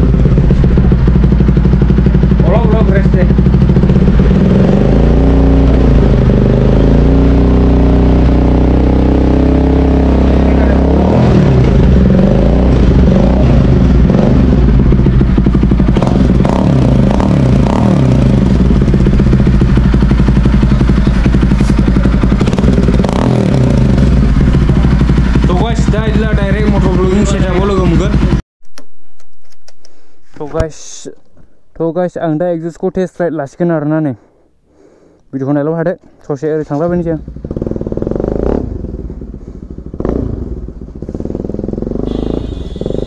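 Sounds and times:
exhaust crackles: 0:00.0 - 0:28.4
motorcycle engine running: 0:00.0 - 0:28.4, 0:36.8 - 0:43.0.

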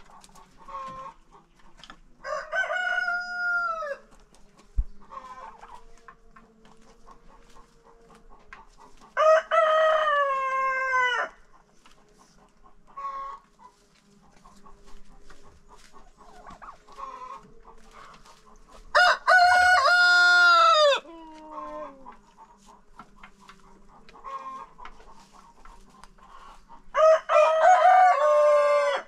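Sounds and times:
chickens clucking softly: 0:00.0 - 0:09.2, 0:10.1 - 0:19.0, 0:20.6 - 0:27.0
rooster crowing: 0:02.2 - 0:04.1, 0:09.2 - 0:11.4, 0:18.9 - 0:21.1, 0:26.9 - 0:29.0.

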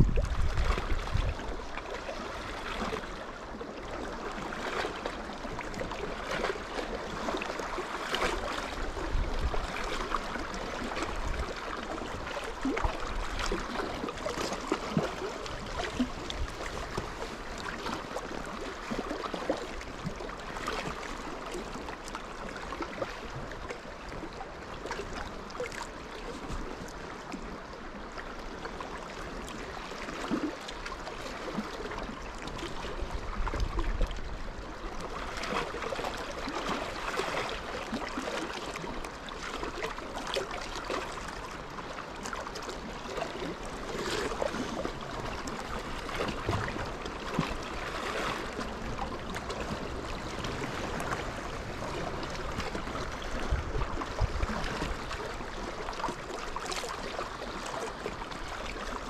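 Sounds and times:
wind rumble on microphone: 0:00.0 - 0:03.5, 0:04.1 - 0:25.4, 0:31.3 - 0:38.0, 0:43.4 - 0:59.0
lake water lapping and splashing: 0:00.0 - 0:59.0.

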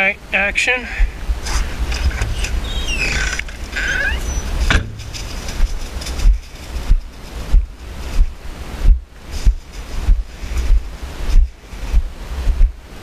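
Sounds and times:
wind buffeting microphone: 0:00.9 - 0:13.0
hinge squeaks: 0:01.4 - 0:05.8
door creaking open: 0:01.5 - 0:05.6.

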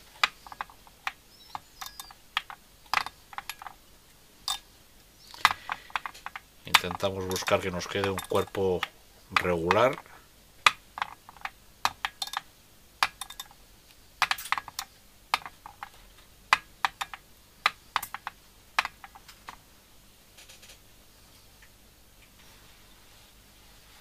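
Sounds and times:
sharp clicks and taps of tools: 0:00.0 - 0:03.8, 0:05.3 - 0:13.6, 0:14.2 - 0:19.6.

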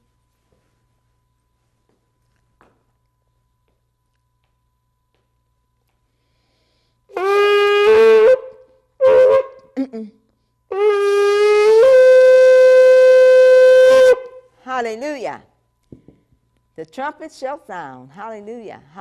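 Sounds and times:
shofar blasts: 0:07.1 - 0:09.6, 0:10.7 - 0:14.5.

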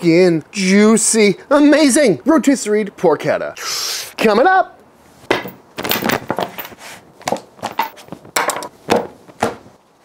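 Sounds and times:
leather roll rustling and flapping: 0:05.8 - 0:09.8.

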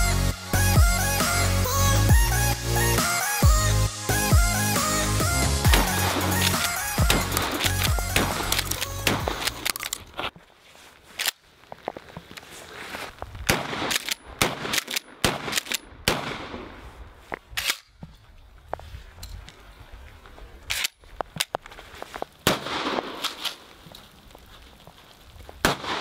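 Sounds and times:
shotgun blasts: 0:05.7 - 0:09.6, 0:13.5 - 0:16.8, 0:22.4 - 0:23.5, 0:25.6 - 0:26.0.

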